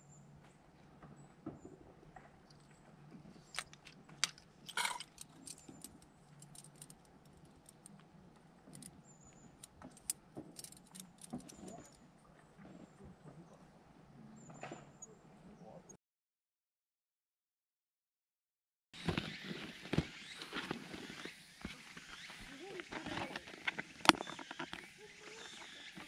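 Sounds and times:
small hard items clicking: 2.4s - 12.0s.

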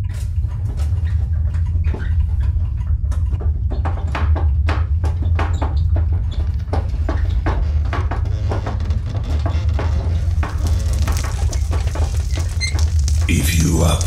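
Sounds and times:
household objects rattling: 6.2s - 13.3s
deep rumble: 7.7s - 14.0s.

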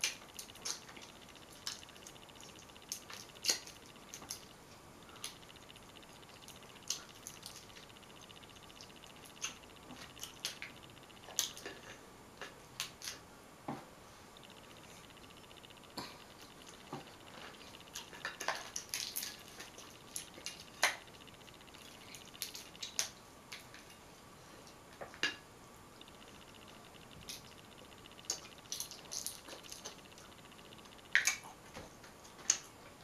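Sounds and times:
crab shells cracking: 0.0s - 4.5s, 17.7s - 21.3s, 28.1s - 31.5s.

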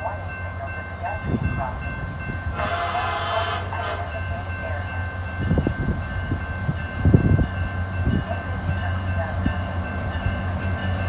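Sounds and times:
train rumble: 0.0s - 11.0s
train horn blast: 2.4s - 4.9s.

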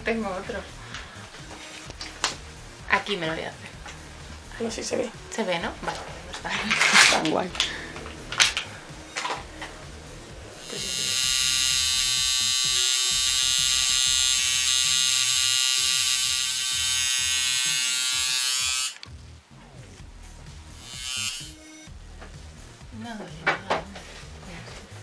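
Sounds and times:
tattoo machine buzzing: 9.7s - 19.0s, 20.7s - 21.9s.

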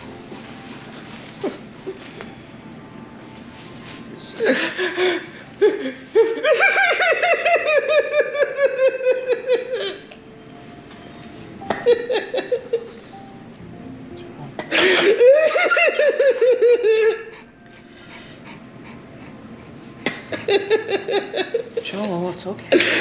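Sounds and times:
man sobbing: 4.3s - 10.1s, 14.6s - 18.7s.

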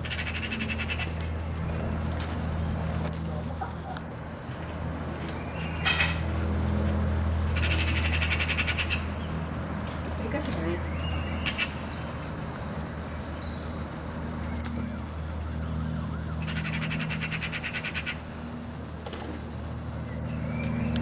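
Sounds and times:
magpie rattling chatter: 0.0s - 1.3s, 7.5s - 9.4s, 16.5s - 18.3s
steady low hum: 0.0s - 21.0s.

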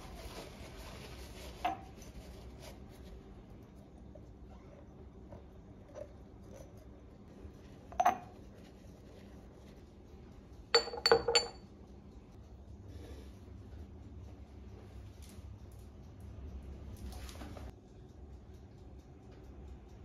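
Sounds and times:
glass jars clinking on stone: 7.9s - 8.3s, 10.8s - 11.6s.

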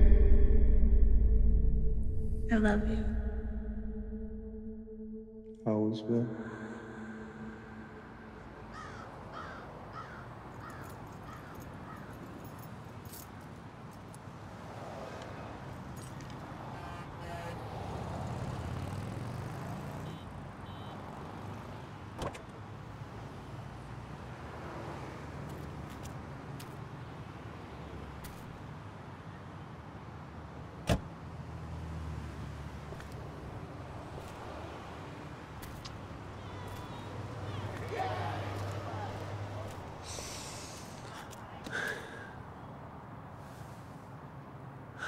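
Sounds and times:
low rumble: 0.0s - 5.6s
crow cawing: 6.9s - 12.2s
car door slamming: 30.8s - 31.1s.

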